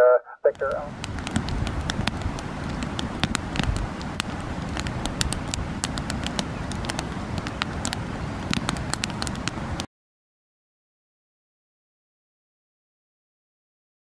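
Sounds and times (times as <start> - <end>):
low steady rumble: 0.0 - 9.9
campfire crackling and popping: 0.5 - 9.9.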